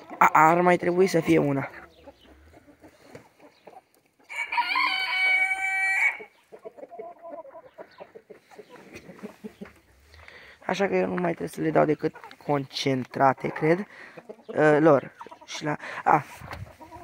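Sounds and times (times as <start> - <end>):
chickens clucking softly: 0.0 - 17.0
rooster crowing: 4.3 - 6.3.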